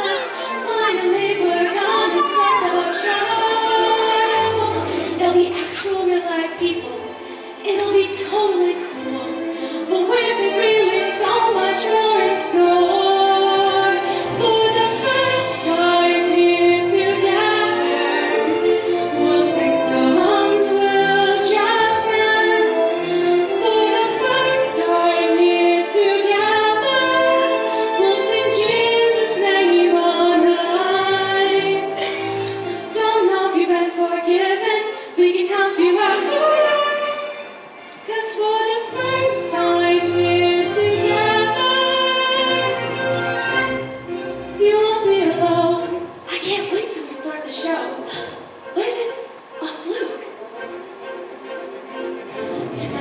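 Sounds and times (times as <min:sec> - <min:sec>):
person singing into microphone: 0:00.0 - 0:07.0.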